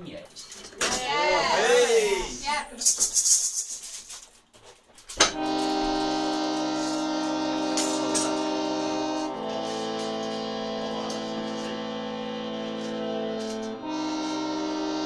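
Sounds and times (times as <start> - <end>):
electronic keyboard organ-like chord: 5.2 - 15.0.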